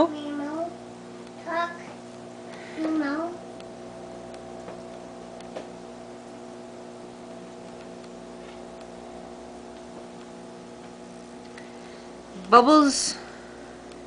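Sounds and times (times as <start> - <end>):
aquarium air pump humming: 0.0 - 14.0
soft ticks: 7.2 - 8.2.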